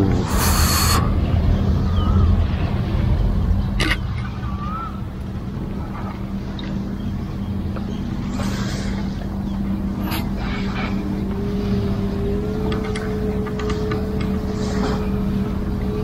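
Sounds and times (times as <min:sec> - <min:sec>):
motorboat engine droning: 0:00.0 - 0:16.0.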